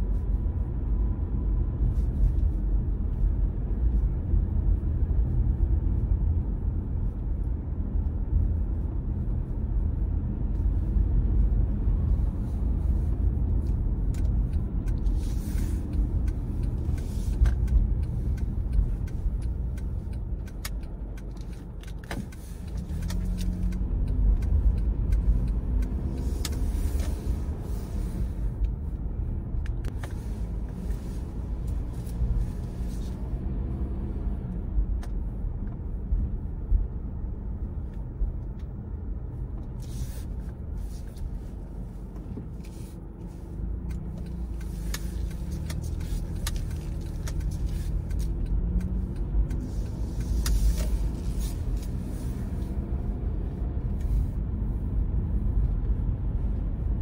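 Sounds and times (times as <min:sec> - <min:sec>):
car road and engine rumble: 0:00.0 - 0:57.0
clicks and ticks: 0:13.6 - 0:27.2, 0:43.8 - 0:52.0.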